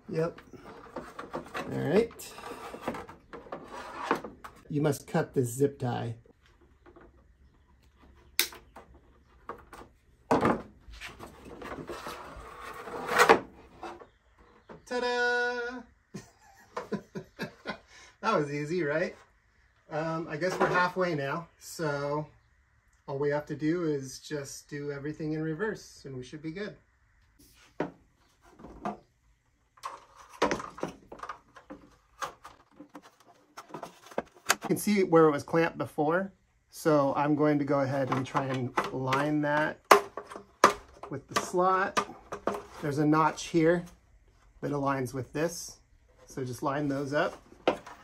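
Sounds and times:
plastic housing rustling and scraping: 0.1s - 4.7s, 6.4s - 14.8s, 20.4s - 21.0s, 27.4s - 29.1s, 29.7s - 34.9s, 37.6s - 44.6s, 46.0s - 48.0s
handling knocks and clicks: 29.8s - 34.8s, 38.0s - 42.9s.

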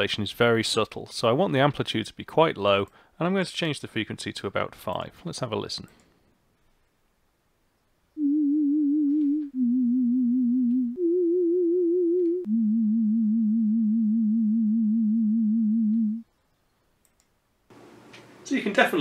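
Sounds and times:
sine-wave synth tone with vibrato: 8.2s - 16.2s.

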